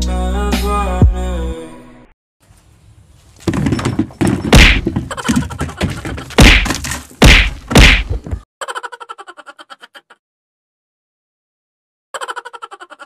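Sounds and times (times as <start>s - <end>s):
background music: 0.0s - 2.1s
plastic bucket knocked on gravel: 3.4s - 8.4s.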